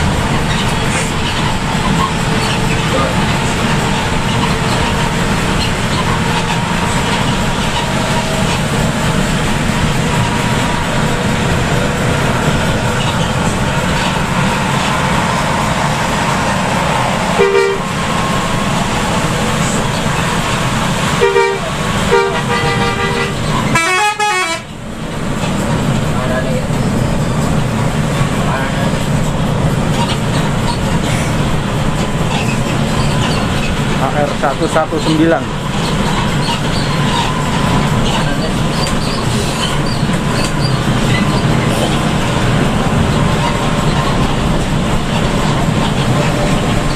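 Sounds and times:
road and rain drone: 0.0s - 46.9s
bus horn blasts: 15.0s - 18.7s, 19.4s - 24.8s
melodic horn wavering: 17.3s - 18.0s, 21.2s - 24.7s.

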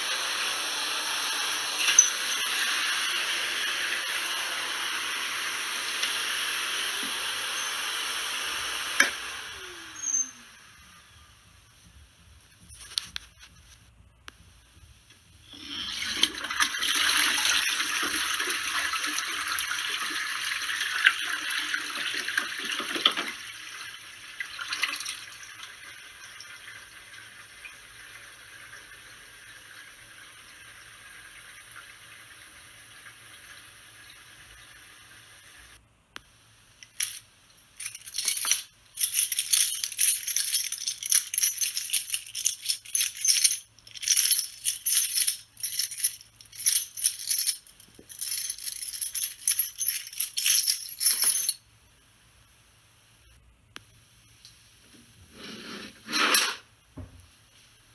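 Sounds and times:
toilet flushing: 0.0s - 9.8s, 15.5s - 35.8s
cistern refilling hiss: 0.0s - 11.2s, 15.4s - 22.8s
keys jangling: 37.8s - 51.6s.

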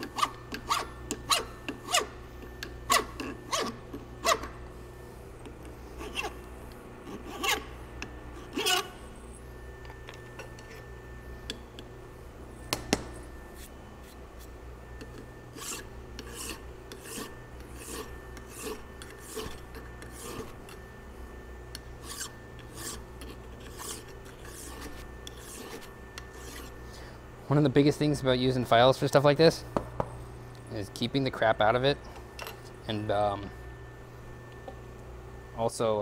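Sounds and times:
file rasping on metal: 0.0s - 4.5s, 5.9s - 6.4s, 7.0s - 7.7s, 8.4s - 9.0s, 15.5s - 20.8s, 22.0s - 26.8s.

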